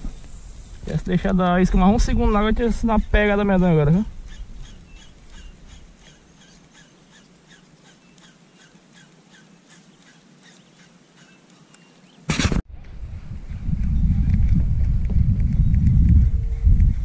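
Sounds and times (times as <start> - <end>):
animal chirping: 4.2 - 12.2.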